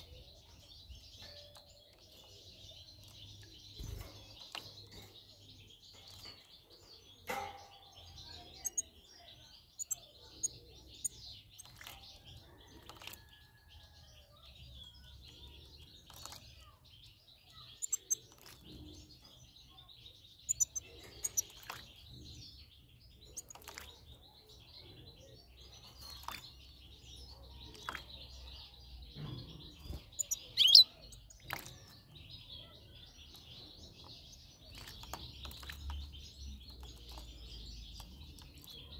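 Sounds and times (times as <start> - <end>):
finches chirping: 8.2 - 12.0, 14.9 - 38.9
bird splashing in water: 31.4 - 31.8.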